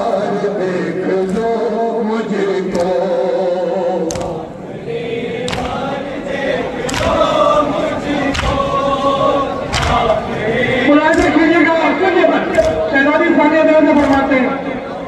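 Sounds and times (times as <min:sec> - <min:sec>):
men chanting in unison: 0:00.0 - 0:15.0
hands slapping chests: 0:02.7 - 0:03.1, 0:04.0 - 0:04.5, 0:05.4 - 0:07.4, 0:08.1 - 0:08.8, 0:09.6 - 0:10.2, 0:11.1 - 0:11.5, 0:12.5 - 0:12.9, 0:14.0 - 0:14.4.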